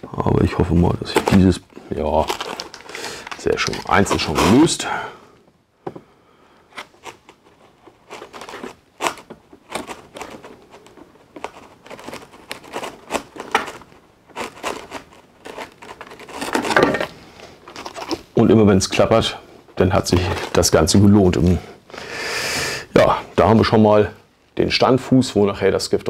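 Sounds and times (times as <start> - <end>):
cardboard crinkling: 0.4 - 4.8, 6.7 - 19.1, 19.8 - 21.4.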